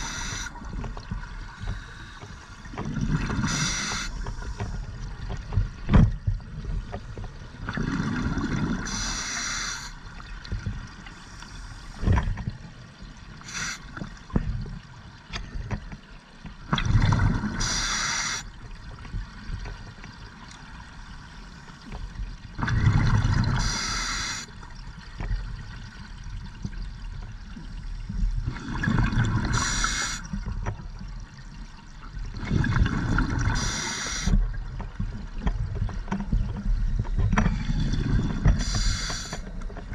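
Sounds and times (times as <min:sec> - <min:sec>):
diver breathing through regulator: 0:00.0 - 0:00.6, 0:03.4 - 0:04.6, 0:08.9 - 0:10.0, 0:13.5 - 0:13.8, 0:17.6 - 0:18.4, 0:23.6 - 0:24.5, 0:33.5 - 0:34.4, 0:38.5 - 0:39.4.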